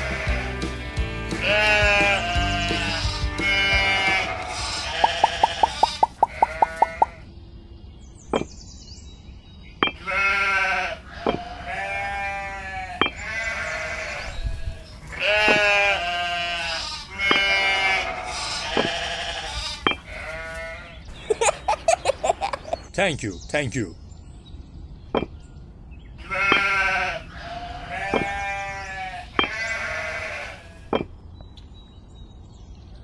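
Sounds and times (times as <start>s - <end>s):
sheep bleating: 0.0s - 7.2s, 10.0s - 21.0s, 26.2s - 30.9s.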